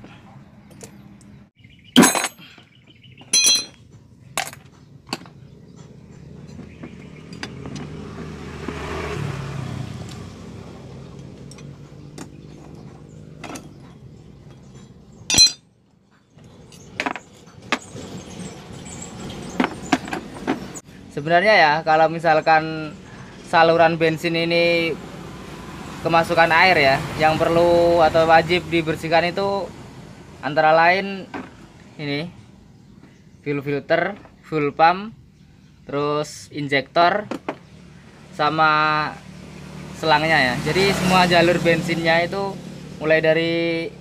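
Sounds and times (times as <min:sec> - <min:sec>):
metal tools clinking: 0:02.0 - 0:02.6, 0:03.2 - 0:06.6, 0:11.2 - 0:15.7
passing vehicle engine: 0:05.3 - 0:15.4, 0:16.1 - 0:33.0, 0:37.1 - 0:44.0.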